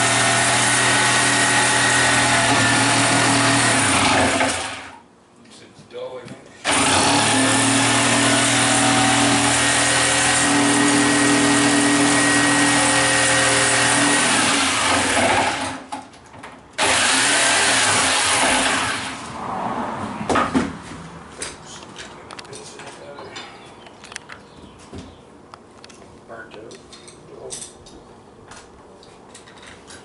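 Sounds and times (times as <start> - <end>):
power tool motor whining: 0.0 - 5.0, 6.6 - 15.9, 16.8 - 19.2.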